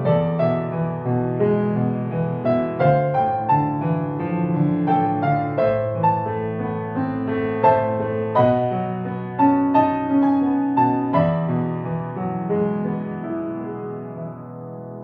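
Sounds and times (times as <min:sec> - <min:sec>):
slow grand piano melody: 0:00.0 - 0:15.0.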